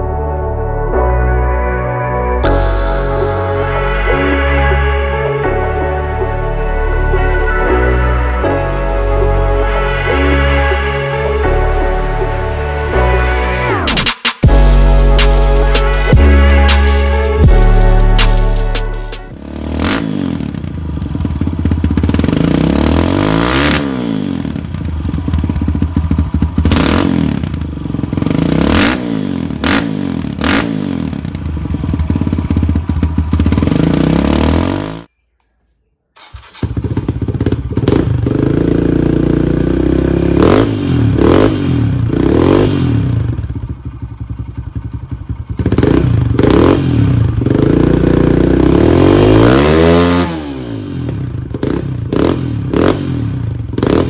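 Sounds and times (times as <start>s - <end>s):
dirt bike engine revving: 13.8s - 35.1s, 36.2s - 43.8s, 44.8s - 54.0s.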